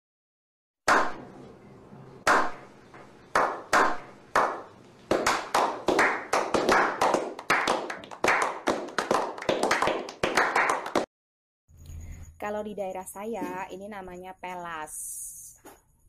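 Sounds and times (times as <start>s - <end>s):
men slow-clapping: 2.3s - 11.1s.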